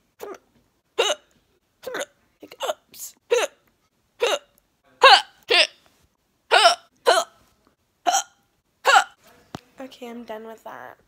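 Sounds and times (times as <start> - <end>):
woman hiccuping: 0.2 - 0.4, 1.0 - 3.6, 4.2 - 5.8, 6.5 - 7.4, 8.1 - 9.2.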